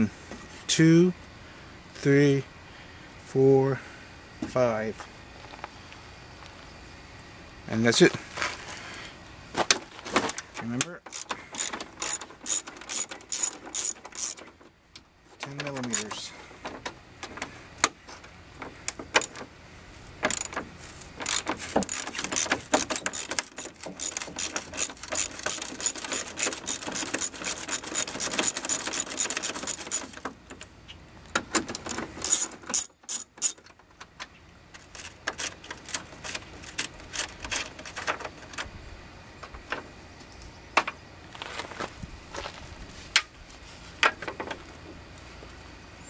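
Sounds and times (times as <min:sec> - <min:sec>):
socket ratchet clicking: 0:11.1 - 0:14.4, 0:15.8 - 0:16.1, 0:20.3 - 0:20.6, 0:21.2 - 0:30.2, 0:31.7 - 0:33.6.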